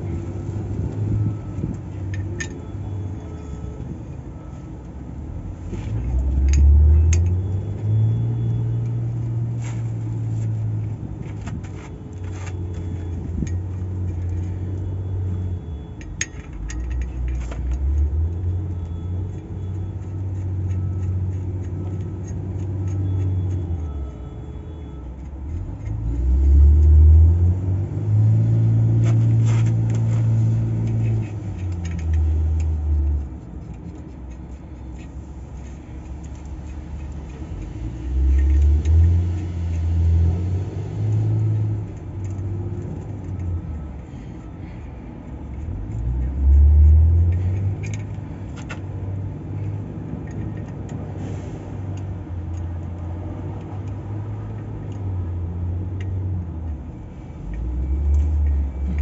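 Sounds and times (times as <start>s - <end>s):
metallic clicks and clanks: 0.0s - 27.6s, 28.2s - 55.2s
wheel loader diesel engine revving: 25.9s - 33.2s.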